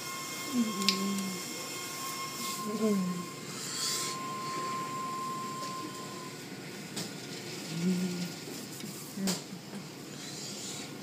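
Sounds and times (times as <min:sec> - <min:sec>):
thin steady whine: 0:00.0 - 0:11.0.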